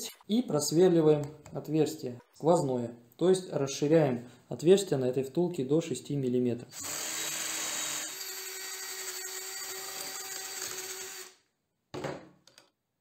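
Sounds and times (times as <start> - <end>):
drill cutting through metal: 6.8 - 11.4.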